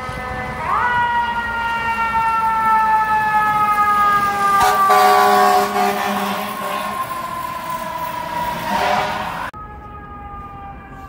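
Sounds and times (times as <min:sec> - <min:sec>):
fire engine siren wailing: 0:00.0 - 0:11.0
horn blast: 0:04.6 - 0:07.0, 0:08.6 - 0:09.5.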